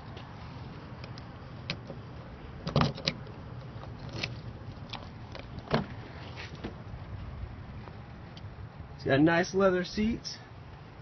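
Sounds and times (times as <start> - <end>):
car door opening: 5.5 - 6.8.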